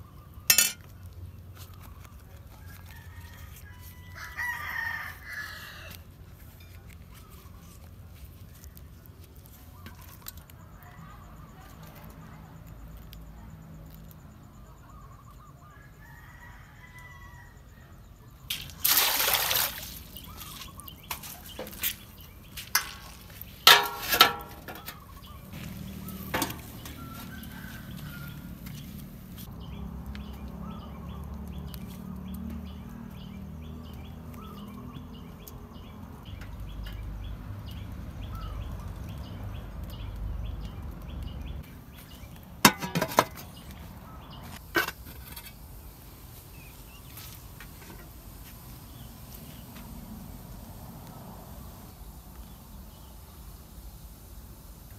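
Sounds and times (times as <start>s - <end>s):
faint birds chirping: 0.0s - 18.8s, 19.4s - 23.8s, 24.4s - 42.6s, 43.3s - 54.9s
metal clinks and knocks: 0.5s - 0.9s
water boiling in a pot: 22.7s - 25.0s, 44.7s - 54.9s.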